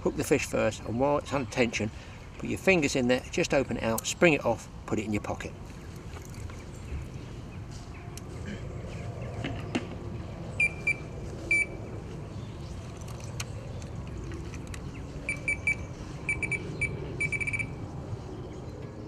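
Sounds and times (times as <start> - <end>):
bite alarm beeps: 10.6 - 11.8, 15.3 - 17.8.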